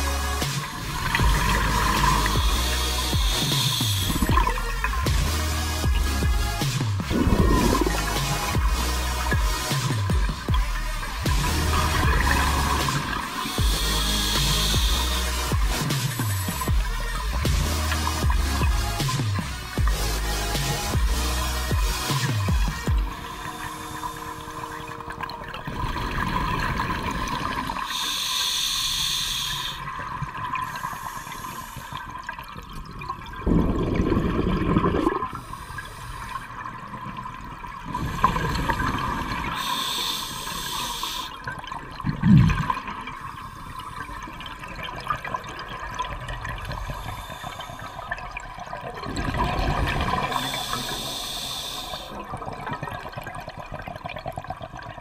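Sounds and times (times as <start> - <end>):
exhaled air bubbling: 0.0 - 55.0
regulator hiss on inhalation: 1.4 - 4.3, 11.5 - 16.7, 27.8 - 30.0, 30.6 - 32.1, 35.3 - 36.6, 37.9 - 41.4, 46.7 - 48.2, 50.2 - 52.3.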